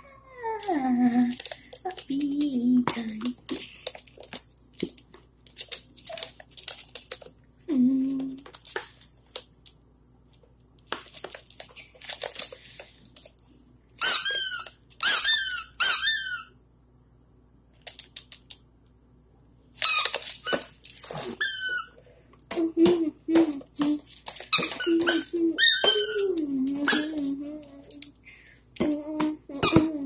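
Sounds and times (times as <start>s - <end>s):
squeaky dog toy squeaking: 14.0s - 16.5s, 21.3s - 21.9s, 24.5s - 26.2s, 26.9s - 27.2s.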